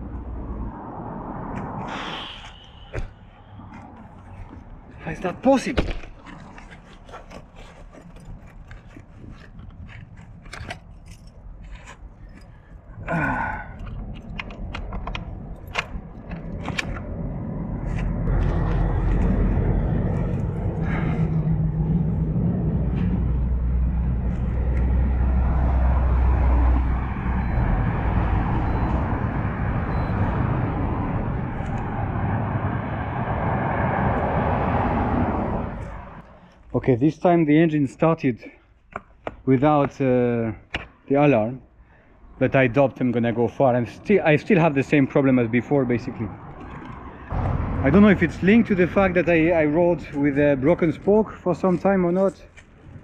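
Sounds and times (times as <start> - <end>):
loud steady low rumble: 16.8 - 25.3, 47.3 - 51.3.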